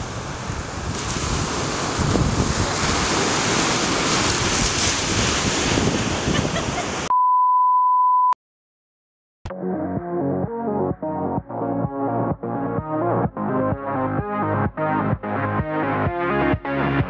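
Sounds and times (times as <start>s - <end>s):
ocean surf: 0.0s - 7.1s
wind buffeting microphone: 0.0s - 7.1s
steady beep tone: 7.1s - 8.4s.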